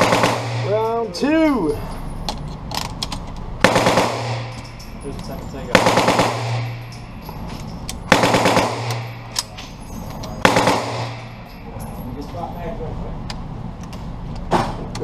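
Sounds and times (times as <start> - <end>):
automatic gunfire bursts: 0.0 - 0.7, 3.6 - 4.5, 5.7 - 6.7, 8.1 - 9.0, 10.4 - 11.2
ringing echo of gunfire: 0.0 - 0.8, 3.6 - 4.7, 5.7 - 6.9, 8.1 - 9.3, 10.4 - 11.4.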